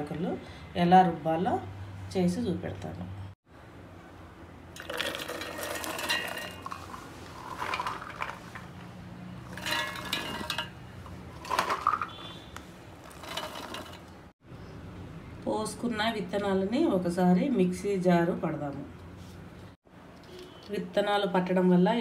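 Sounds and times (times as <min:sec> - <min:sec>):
corn kernels rattling into steel jar: 0:04.8 - 0:08.8, 0:09.4 - 0:10.8, 0:11.4 - 0:12.2, 0:13.0 - 0:14.2.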